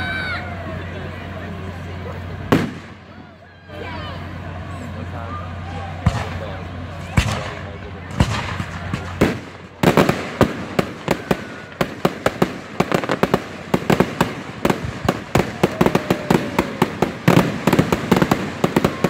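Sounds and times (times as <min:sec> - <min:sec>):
fireworks bangs and crackles: 0:01.6 - 0:03.3, 0:05.5 - 0:19.0.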